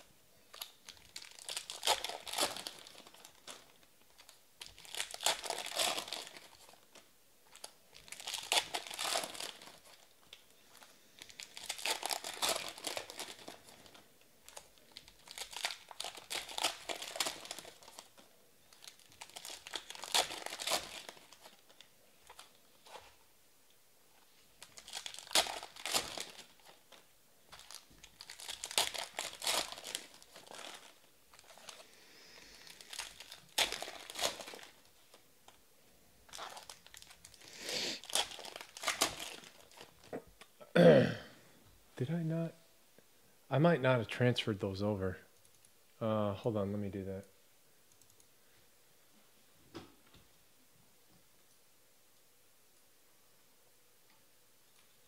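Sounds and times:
foil wrappers tearing and crinkling: 0.0 - 23.2, 24.5 - 35.2, 36.3 - 40.1.

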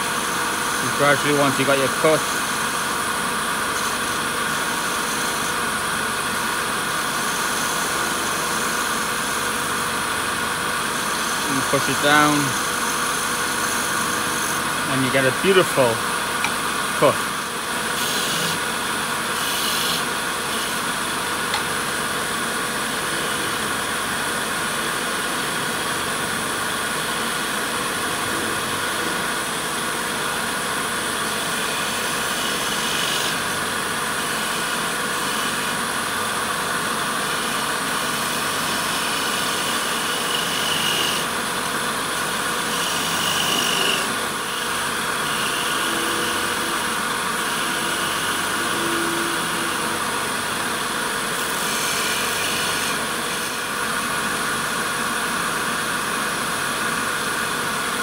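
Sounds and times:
wood lathe motor hum: 0.0 - 55.2
lathe knife cutting wood: 10.7 - 23.8, 31.4 - 33.5, 37.3 - 50.8, 51.4 - 53.8.

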